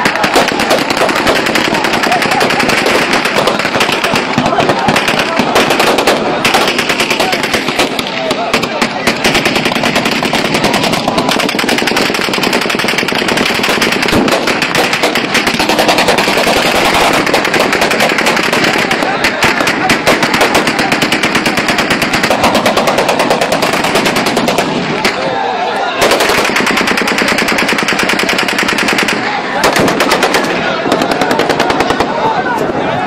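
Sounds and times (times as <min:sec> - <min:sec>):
guns firing: 0:00.0 - 0:32.4.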